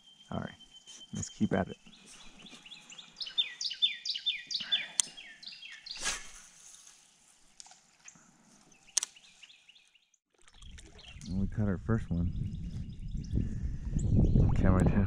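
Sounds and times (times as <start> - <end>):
songbird singing: 0.0 - 6.3, 7.0 - 14.8
sharp clicks: 8.9 - 9.2.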